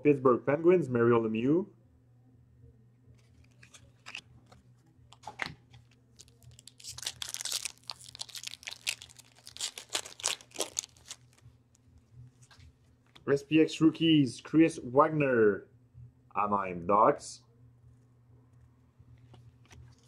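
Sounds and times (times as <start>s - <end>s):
wrapper crinkling and tearing: 3.2s - 4.2s, 5.2s - 11.5s.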